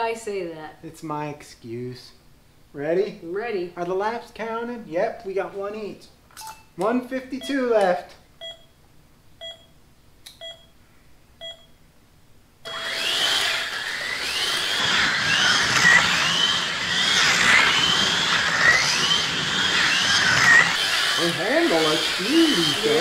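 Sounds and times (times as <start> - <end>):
short electronic beeps: 10.4 - 10.7
slot car motors whining: 12.7 - 23.0.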